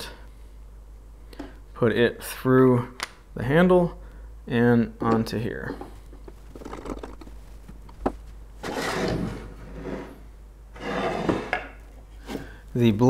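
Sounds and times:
short scraping sounds: 8.6 - 12.5.

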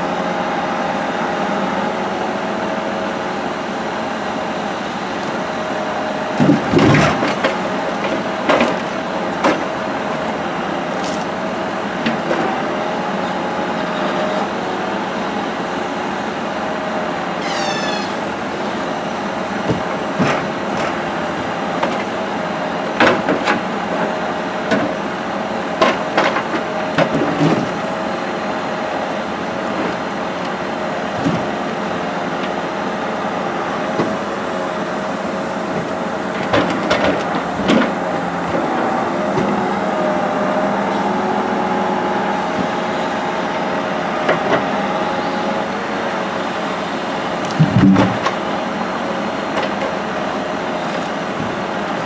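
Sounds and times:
truck engine and hydraulics hum: 0.0 - 52.0
short falling squeak: 17.4 - 18.4
logs knocking and thudding: 47.5 - 48.4.

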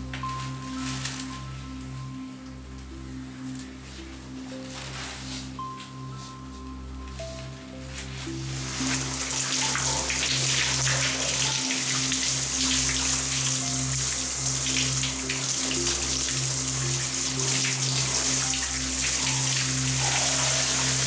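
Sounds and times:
soft background music: 0.0 - 21.0
shower spray hissing: 4.7 - 21.0.

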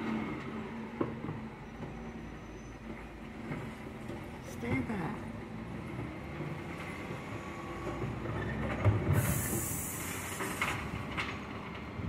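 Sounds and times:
garbage truck engine rumbling: 0.0 - 12.0
sharp air hiss: 9.2 - 10.8.

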